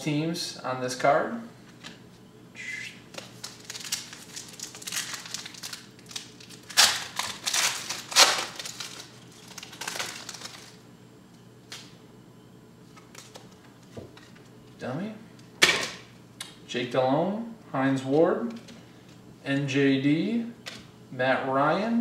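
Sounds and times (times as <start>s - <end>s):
foil wrapper crinkling: 3.1s - 10.8s.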